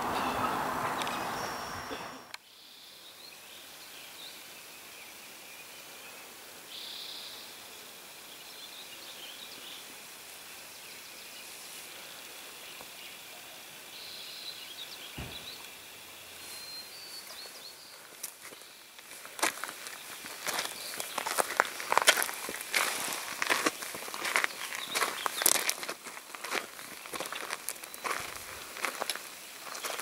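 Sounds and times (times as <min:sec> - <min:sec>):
bird calls and chirping: 0:00.0 - 0:03.1, 0:14.0 - 0:18.8, 0:23.8 - 0:25.6
steady hiss: 0:00.0 - 0:30.0
low thump: 0:15.2 - 0:15.7.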